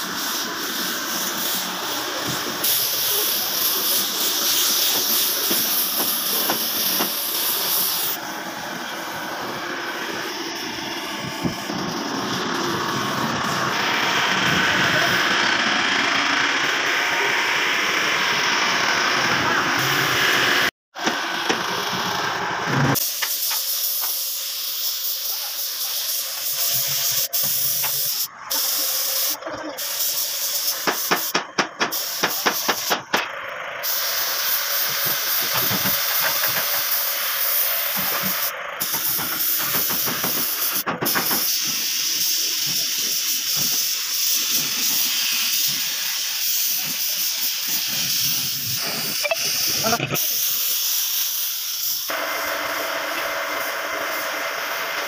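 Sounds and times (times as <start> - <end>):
paint spray gun hissing: 0.0 - 22.2, 23.0 - 55.0.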